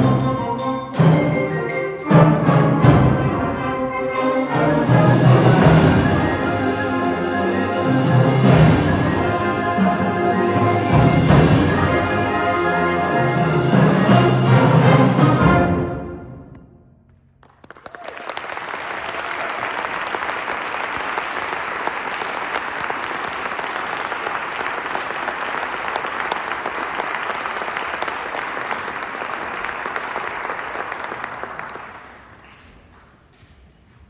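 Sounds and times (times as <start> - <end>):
audience applauding: 17.4 - 33.1.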